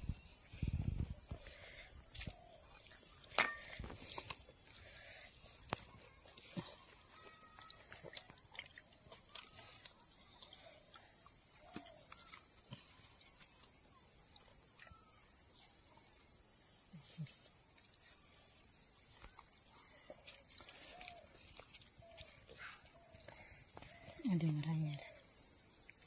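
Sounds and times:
faint bird chirps: 9.1s - 26.0s.

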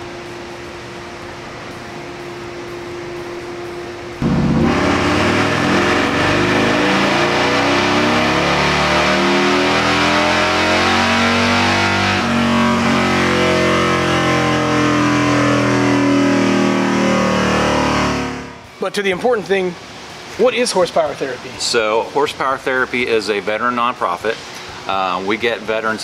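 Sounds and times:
motorcycle engine revving on dyno: 4.2s - 18.6s.

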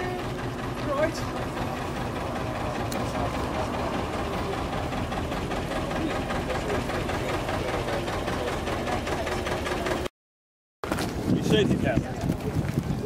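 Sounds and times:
boat diesel engine running: 0.0s - 10.1s.

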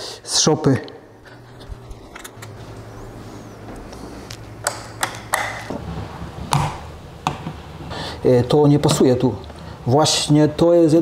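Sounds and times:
steady low hum: 0.0s - 11.0s
light switches clicking: 4.6s - 5.7s.

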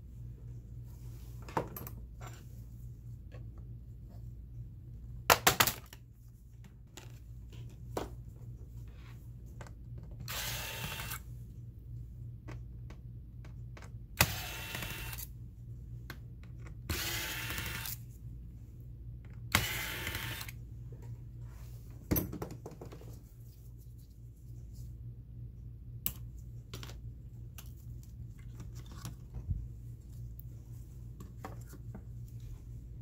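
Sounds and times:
electric screwdriver whirring: 10.3s - 11.2s, 14.2s - 15.3s, 16.9s - 18.0s, 19.5s - 20.6s.

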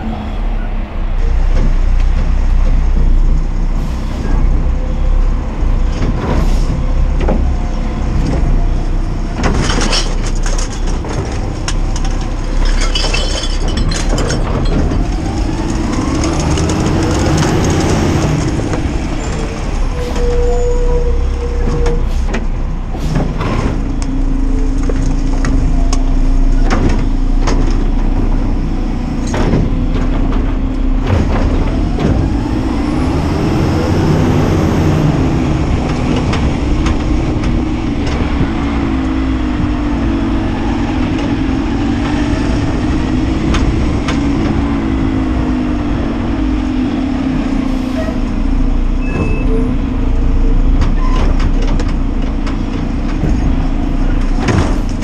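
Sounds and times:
garbage truck engine rumble: 0.0s - 55.0s
sharp clanks and bangs: 9.4s - 19.4s, 29.2s - 32.4s, 50.7s - 55.0s.

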